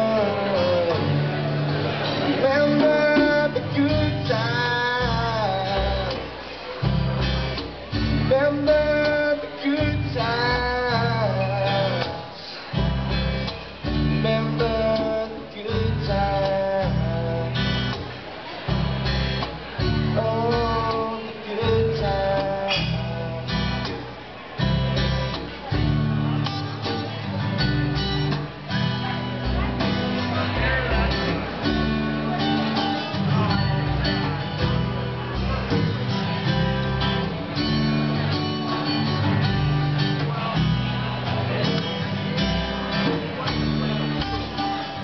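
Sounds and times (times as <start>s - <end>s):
man singing: 0.0s - 7.2s, 7.9s - 18.0s, 19.8s - 24.1s
strummed acoustic guitar: 0.0s - 45.0s.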